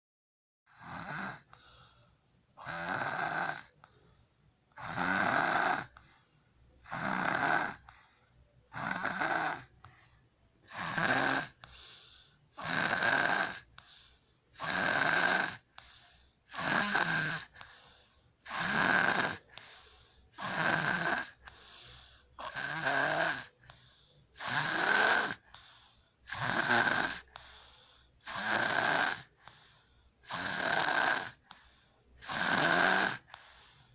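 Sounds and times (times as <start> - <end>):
child snoring: 0.7 - 1.6, 2.6 - 3.8, 4.7 - 6.0, 6.8 - 8.1, 8.7 - 9.8, 10.6 - 11.9, 12.5 - 33.9
faint breathing: 0.7 - 2.7, 3.6 - 5.0, 5.8 - 6.9, 7.7 - 10.9, 11.5 - 12.7, 13.6 - 14.7, 15.6 - 20.6, 21.2 - 22.6, 23.4 - 24.4, 25.3 - 26.4, 27.2 - 28.4, 29.2 - 30.4, 31.3 - 32.4, 33.2 - 33.9.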